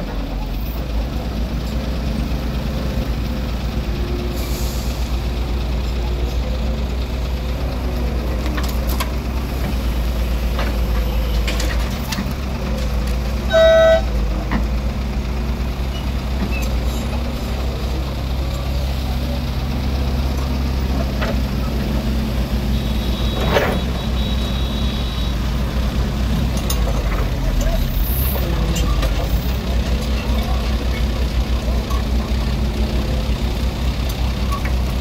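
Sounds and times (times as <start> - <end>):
diesel excavator engine running: 0.0 - 35.0
short horn toot: 13.5 - 14.1.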